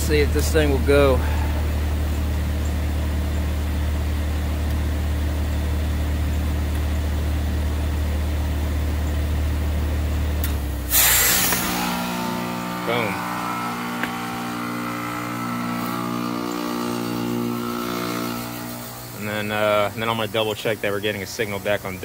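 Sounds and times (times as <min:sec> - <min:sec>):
heat pump humming: 0:00.0 - 0:22.0
refrigerant hissing loudly: 0:10.9 - 0:22.0.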